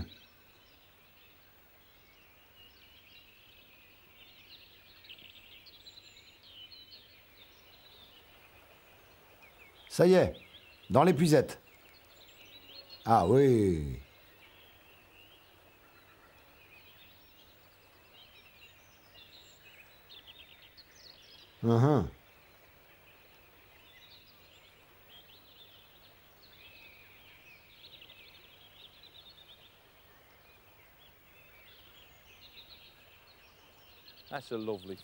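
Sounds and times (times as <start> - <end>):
small birds chirping: 0.0 - 35.0
low-pitched vocal sound: 13.1 - 14.0, 21.6 - 22.2.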